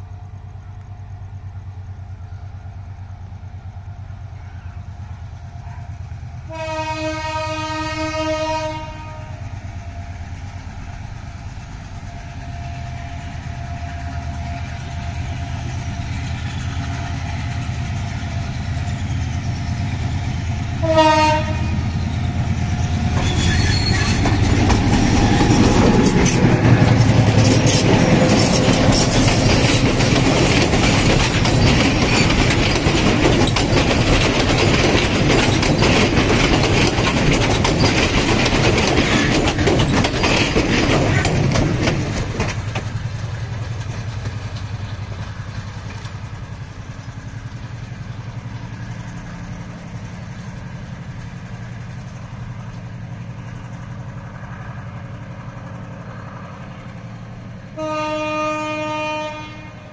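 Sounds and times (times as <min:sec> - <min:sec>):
train engine running: 0:00.0 - 0:59.9
train wheels clattering over rail joints: 0:15.4 - 0:54.4.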